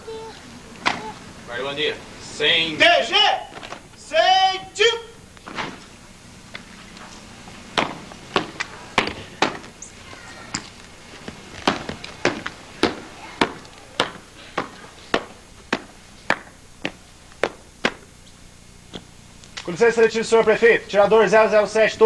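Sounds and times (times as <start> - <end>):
boot heels marching on cobblestones: 7.5 - 9.8, 10.5 - 18.1.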